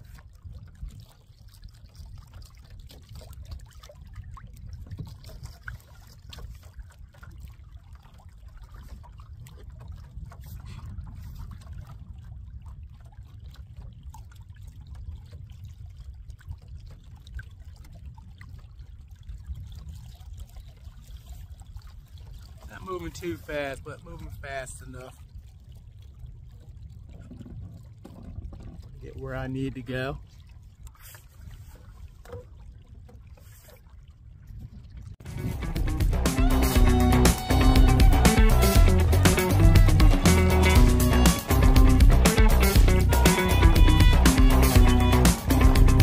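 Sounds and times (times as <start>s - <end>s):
small splashes: 0.0s - 46.0s
water lapping along kayak hull: 0.0s - 46.0s
low rumble: 34.8s - 46.0s.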